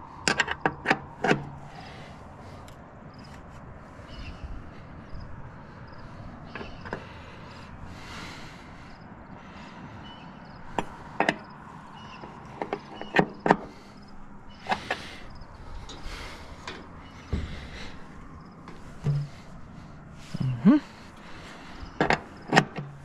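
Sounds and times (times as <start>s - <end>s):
metal clanks and taps: 0.2s - 1.6s, 10.7s - 11.5s, 12.1s - 13.7s, 16.6s - 17.6s, 18.7s - 19.5s, 22.0s - 23.0s
dull thump: 17.2s - 18.0s, 19.0s - 19.5s.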